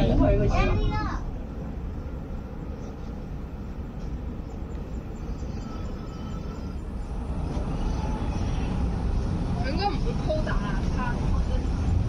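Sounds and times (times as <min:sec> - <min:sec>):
tram rumbling on rails: 0:00.0 - 0:12.0.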